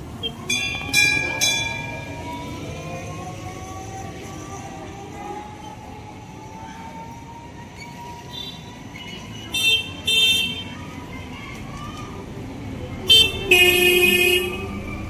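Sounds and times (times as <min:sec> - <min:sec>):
street hum: 0:00.0 - 0:15.0
vehicle horn toots: 0:13.1 - 0:14.8.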